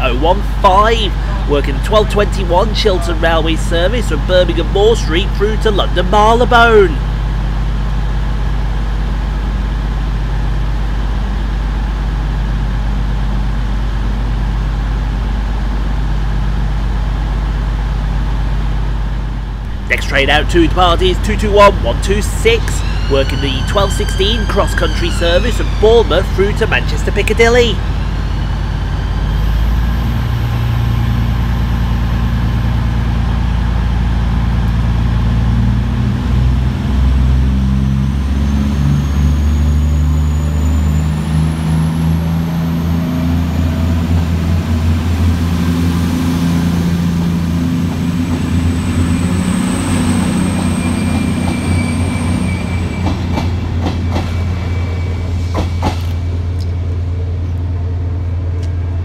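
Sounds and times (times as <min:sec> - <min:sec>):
diesel train engines droning: 0:00.0 - 0:59.0
faint high whine rising: 0:09.9 - 0:35.7, 0:54.2 - 0:59.0.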